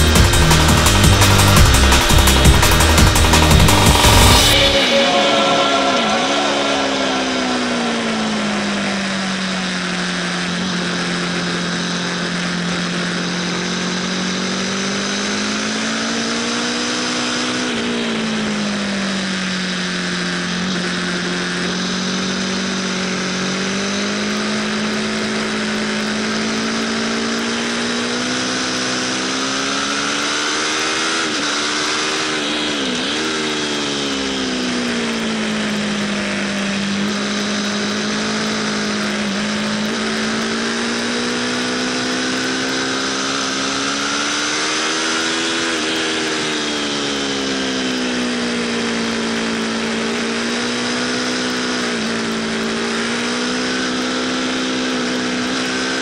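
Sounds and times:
heavy wind rush: 0.0 - 9.5
motorcycle engine running: 0.0 - 56.0.

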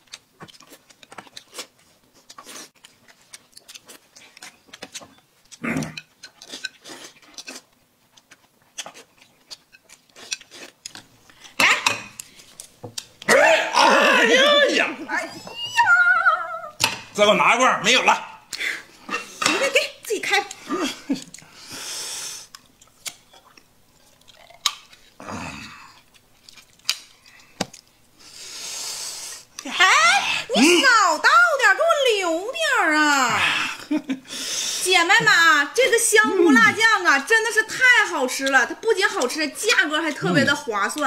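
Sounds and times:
chewing and lip-smacking: 0.0 - 13.3, 20.4 - 21.6, 22.5 - 25.2, 26.0 - 27.9.

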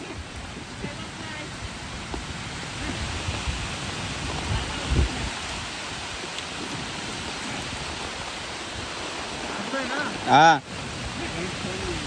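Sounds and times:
low rumbling bumps: 0.0 - 9.5
rain falling: 0.0 - 12.0.

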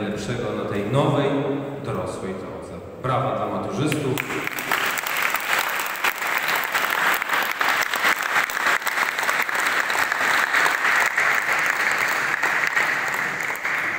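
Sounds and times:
audience applauding: 4.2 - 13.9.

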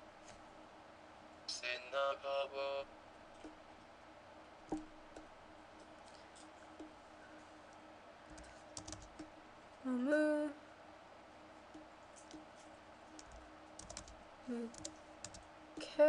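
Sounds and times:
computer mouse clicks: 8.3 - 9.3, 13.2 - 15.4.

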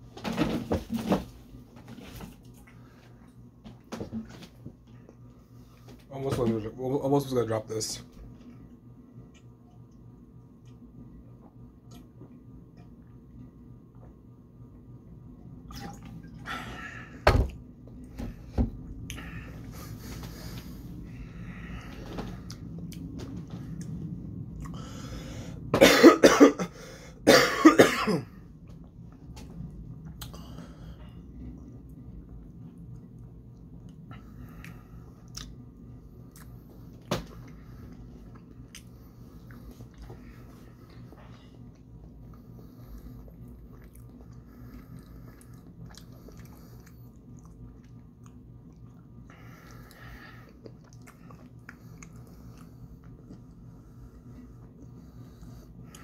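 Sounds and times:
low steady hum: 0.0 - 56.0
man coughing: 25.8 - 28.4
person chewing: 31.6 - 35.6, 36.2 - 54.8.

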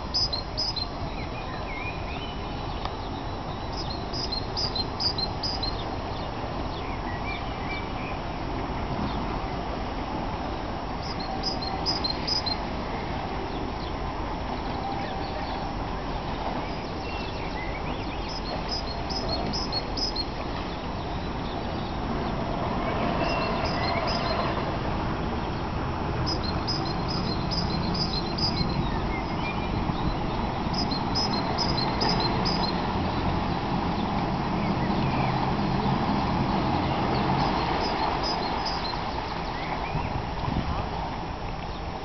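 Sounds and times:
small bird chirping: 0.1 - 0.9, 3.7 - 6.2, 11.0 - 12.6, 17.1 - 20.3, 23.2 - 24.4, 26.3 - 32.8, 37.1 - 39.0
boat engine rumbling: 8.2 - 42.0.

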